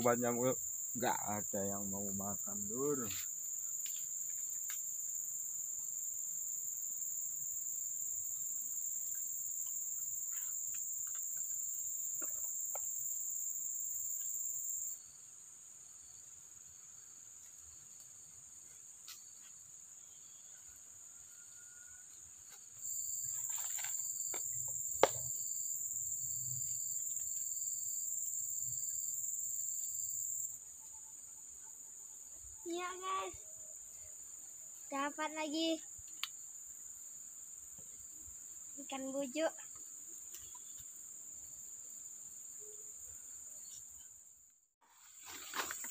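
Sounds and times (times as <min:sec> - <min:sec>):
sharp tap: 0:25.0 - 0:25.3.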